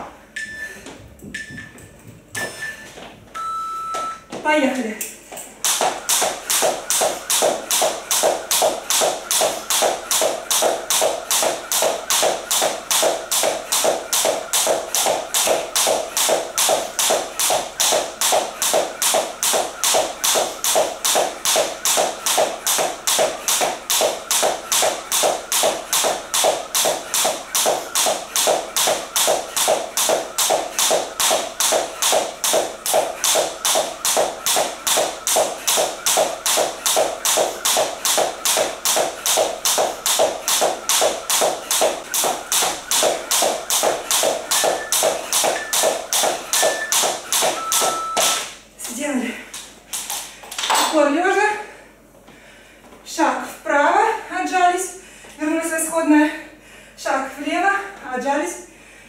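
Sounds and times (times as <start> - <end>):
jump rope slapping wooden floor: 5.6 - 51.0.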